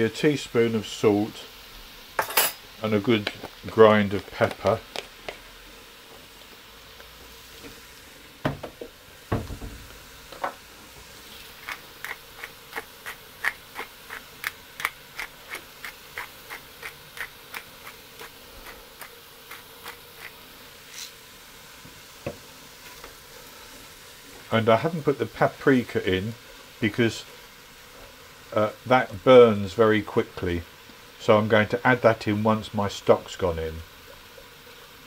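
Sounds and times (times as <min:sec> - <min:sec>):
pepper mill clicking: 0:11.6 - 0:20.3.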